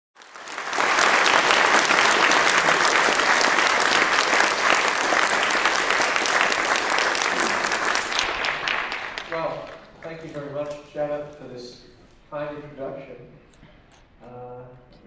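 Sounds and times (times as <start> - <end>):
audience applauding: 0.2 - 10.8.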